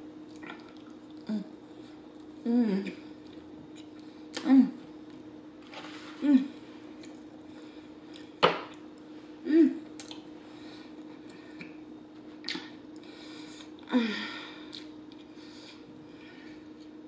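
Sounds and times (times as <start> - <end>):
steady low hum: 0.0 - 17.0
woman humming mm: 1.2 - 1.6, 2.4 - 3.2, 6.2 - 6.6, 9.4 - 9.9
woman chewing food: 14.6 - 17.0.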